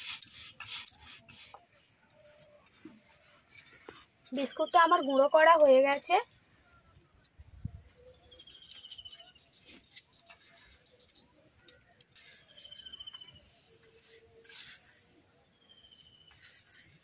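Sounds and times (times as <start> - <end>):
hand scraping stone slab: 0.0 - 1.8.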